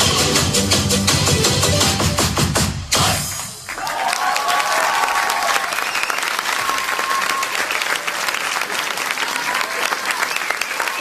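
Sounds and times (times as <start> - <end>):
audience clapping: 3.2 - 11.0.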